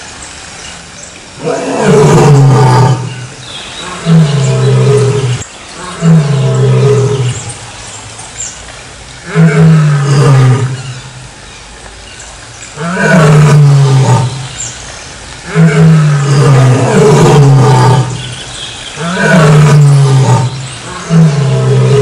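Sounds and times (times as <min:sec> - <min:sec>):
lion roaring: 0:01.4 - 0:07.6, 0:09.3 - 0:11.0, 0:12.8 - 0:14.5, 0:15.5 - 0:18.3, 0:19.0 - 0:22.0.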